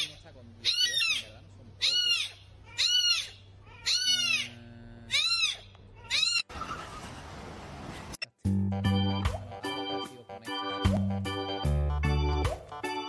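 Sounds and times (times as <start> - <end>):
kitten mewing: 1.8 - 6.4.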